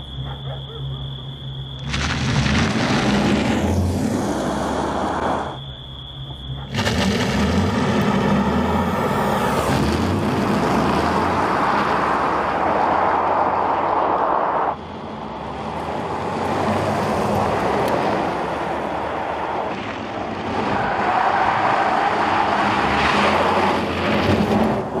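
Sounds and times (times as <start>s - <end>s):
tyres and air rushing: 1.9s - 5.6s.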